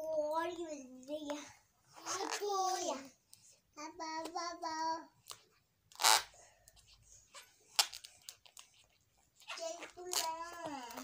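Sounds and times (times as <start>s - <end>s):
rubber balloon clicks and rubbing: 1.3s - 2.8s, 5.2s - 11.0s.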